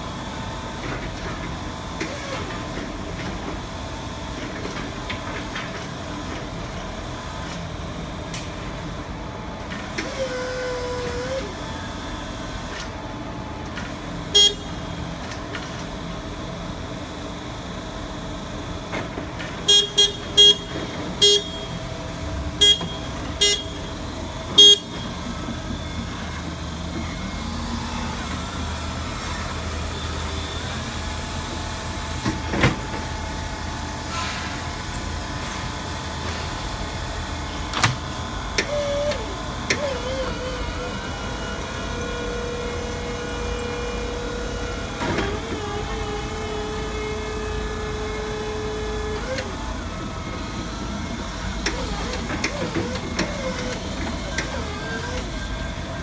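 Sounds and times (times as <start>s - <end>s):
forklift short loud beeps: 14.3s - 14.8s, 19.6s - 21.8s, 22.6s - 25.3s.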